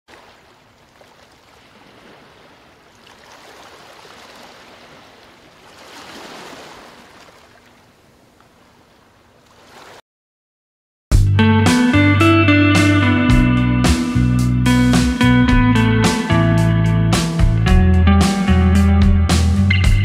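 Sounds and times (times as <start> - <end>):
ocean waves surging: 0.1 - 7.9.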